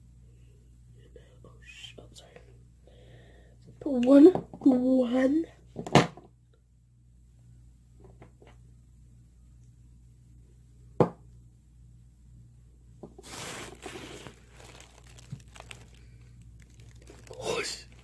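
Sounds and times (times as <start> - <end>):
rustling and scraping: 13.0 - 18.0.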